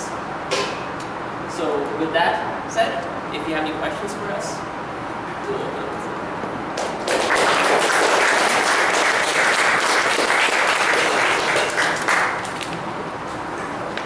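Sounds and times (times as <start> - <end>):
audience applauding: 6.8 - 12.7.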